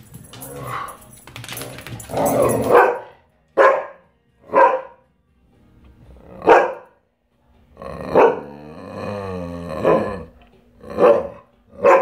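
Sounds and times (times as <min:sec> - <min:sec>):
dog barking: 0:02.4 - 0:05.0, 0:06.4 - 0:07.0, 0:08.1 - 0:08.5, 0:11.0 - 0:12.0.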